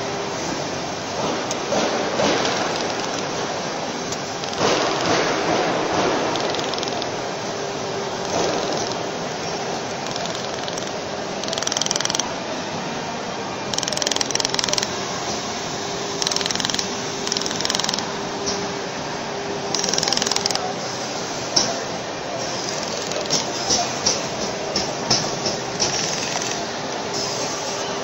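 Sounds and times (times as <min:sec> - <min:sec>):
steady machine hum: 0:00.0 - 0:28.0
laser welder rapid ticking: 0:04.4 - 0:05.4, 0:06.0 - 0:07.1, 0:10.0 - 0:12.3, 0:13.7 - 0:14.9, 0:16.2 - 0:18.1, 0:19.7 - 0:20.6.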